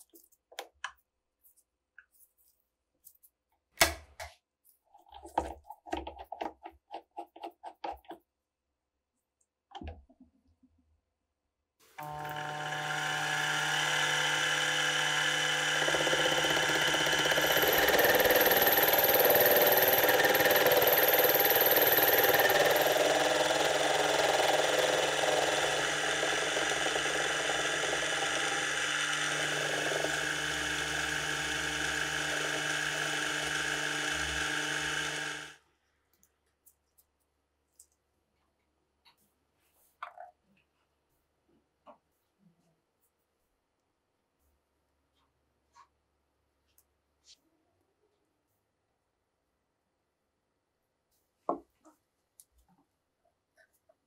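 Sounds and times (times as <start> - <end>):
milling spindle grinding metal: 12.2 - 35.5.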